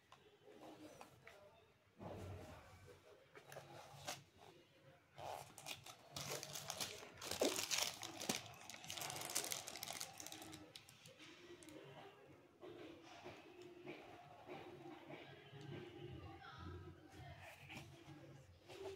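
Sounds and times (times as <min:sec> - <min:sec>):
plastic bag crinkling: 0:05.6 - 0:11.2.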